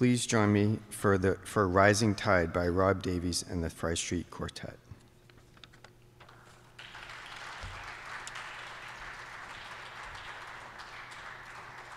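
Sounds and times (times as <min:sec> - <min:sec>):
audience applauding: 0:06.4 - 0:11.9.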